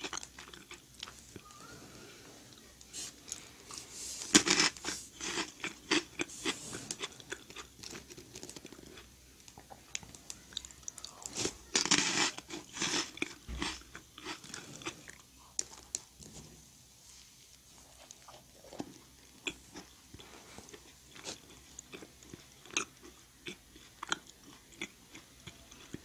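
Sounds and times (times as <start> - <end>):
meringue cookies crunching: 0.0 - 16.4, 17.4 - 26.0
soft chewing: 0.0 - 26.0.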